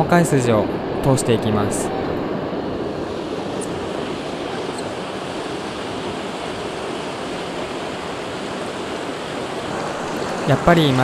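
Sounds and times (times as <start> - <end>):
river rushing over rocks: 3.2 - 11.0.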